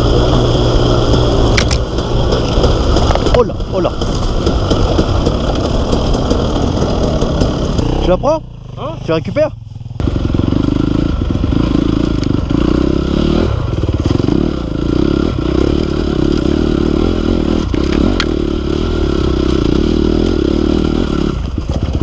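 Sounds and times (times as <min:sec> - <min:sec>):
dirt bike engine under load: 0:00.0 - 0:08.7, 0:15.4 - 0:18.5
bike clattering over rough ground: 0:00.9 - 0:08.2, 0:21.4 - 0:22.0.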